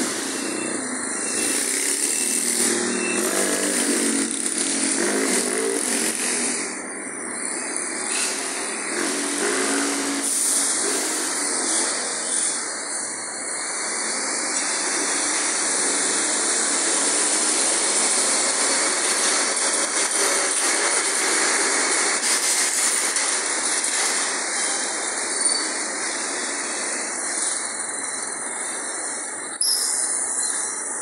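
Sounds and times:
motorcycle engines passing: 0:00.0 - 0:12.8
street traffic noise: 0:00.0 - 0:31.0.

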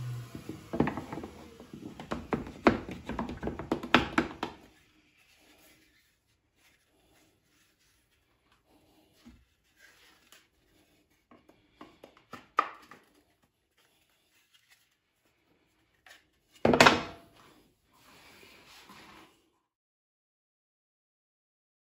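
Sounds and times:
plywood pieces knocking: 0:00.4 - 0:04.6, 0:16.6 - 0:17.2
wooden clatter: 0:00.4 - 0:04.6.

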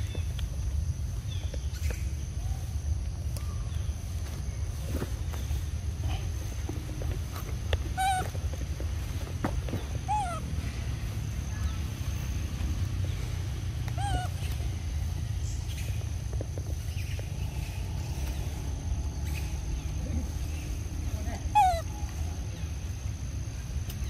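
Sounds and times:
low rumble: 0:03.0 - 0:23.6
infant monkey cooing: 0:07.9 - 0:08.5, 0:10.0 - 0:10.8, 0:13.7 - 0:14.8, 0:21.3 - 0:22.6.

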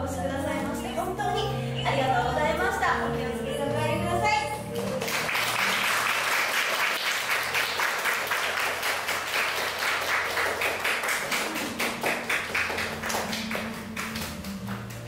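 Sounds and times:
audience applauding: 0:04.8 - 0:15.0.

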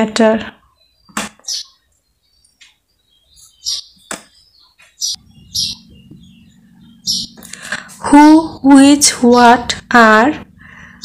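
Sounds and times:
small birds chirping: 0:00.0 - 0:11.0
low steady hum: 0:05.1 - 0:11.0.

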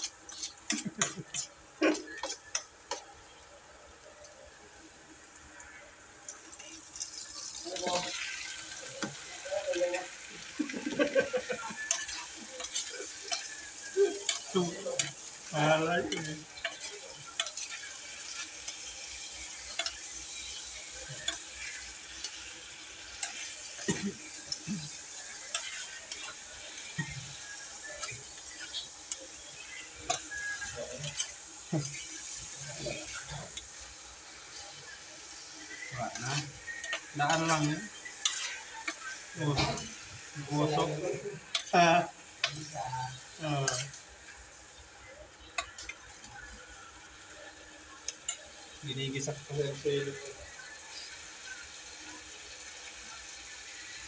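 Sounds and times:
metal spoon scraping a pot: 0:00.0 - 0:01.6, 0:36.1 - 0:39.0
chicken sizzling in hot oil: 0:00.0 - 0:54.0.

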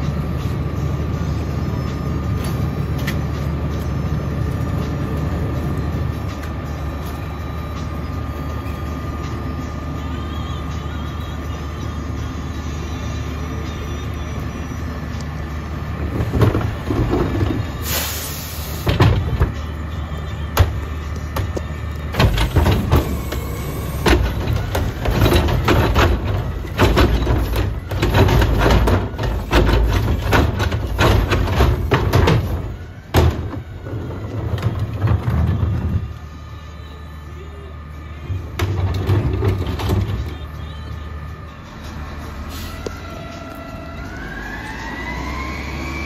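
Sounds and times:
diesel engine running: 0:00.0 - 0:46.0
garbage cart clanking and banging: 0:16.0 - 0:19.8, 0:20.5 - 0:36.1, 0:38.3 - 0:40.5.

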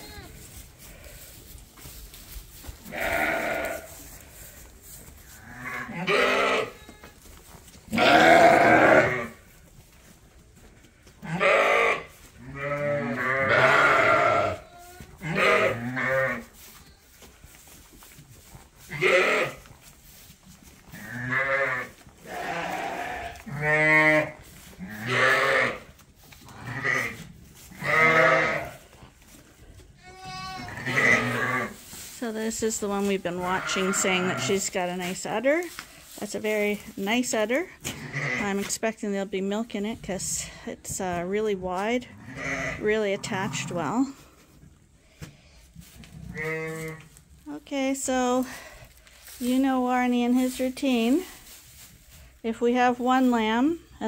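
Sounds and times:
sheep bleating: 0:02.9 - 0:03.9, 0:05.5 - 0:07.0, 0:07.9 - 0:09.3, 0:11.3 - 0:16.4, 0:18.9 - 0:19.6, 0:21.0 - 0:24.3, 0:26.6 - 0:27.2, 0:27.8 - 0:28.7, 0:30.0 - 0:31.7, 0:33.4 - 0:34.6, 0:38.0 - 0:38.4, 0:42.2 - 0:43.8.

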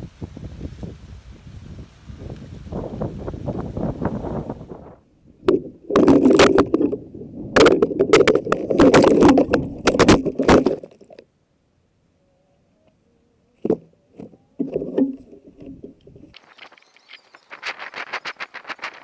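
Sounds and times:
wind on microphone: 0:00.0 - 0:10.7
propellers clattering against branches: 0:13.6 - 0:19.0.

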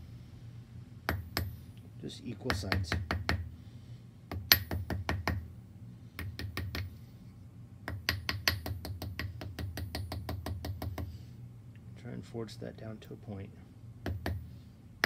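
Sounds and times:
small hammer tapping on steel: 0:01.1 - 0:01.6, 0:04.3 - 0:05.4, 0:06.2 - 0:06.9, 0:07.9 - 0:11.1, 0:14.0 - 0:14.4.

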